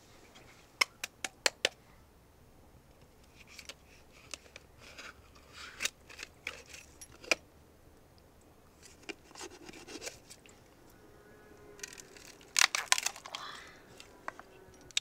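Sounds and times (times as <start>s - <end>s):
hard objects scraping: 8.8s - 10.5s, 11.6s - 15.0s.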